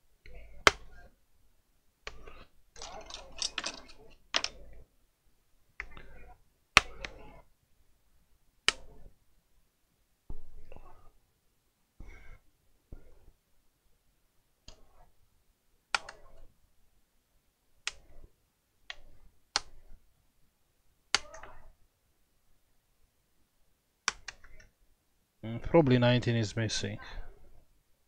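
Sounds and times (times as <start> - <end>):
plastic clips clicking loose: 2.8 - 4.6
plastic scraping and handling: 2.8 - 4.6.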